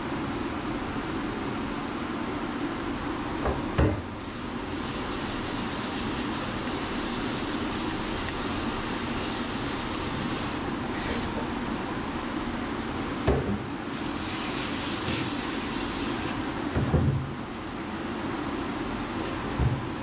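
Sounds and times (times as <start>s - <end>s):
hose sprayer hissing: 4.2s - 11.3s, 13.9s - 16.4s.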